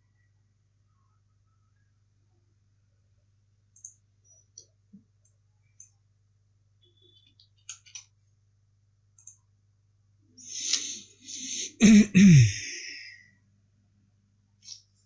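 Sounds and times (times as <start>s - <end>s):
faint mouse clicks: 3.7s - 6.0s, 7.1s - 8.2s, 9.2s - 9.5s, 14.6s - 14.9s.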